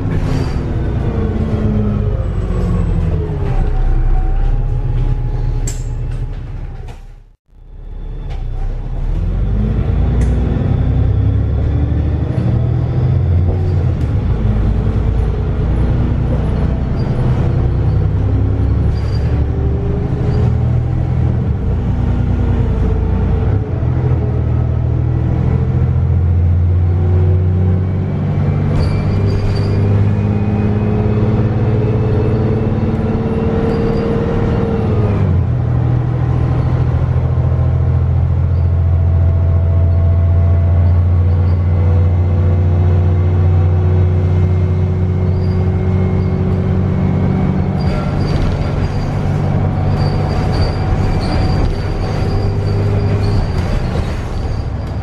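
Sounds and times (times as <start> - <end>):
bus engine accelerating: 0.0 - 55.0
gearbox whine: 45.0 - 55.0.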